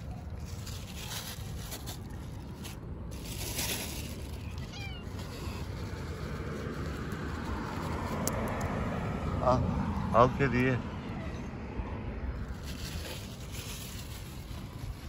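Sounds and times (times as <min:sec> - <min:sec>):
cat meowing: 0:04.4 - 0:05.6.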